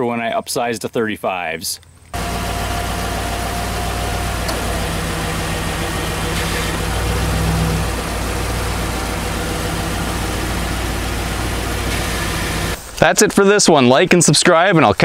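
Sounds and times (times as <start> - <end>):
pickup engine idling: 2.2 - 12.8.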